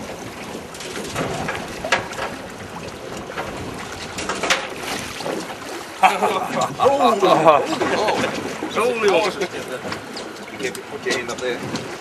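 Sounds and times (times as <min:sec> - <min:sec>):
wind on microphone: 0:00.0 - 0:08.7
fish splashing: 0:00.0 - 0:09.3
water sloshing against boat: 0:00.0 - 0:12.0.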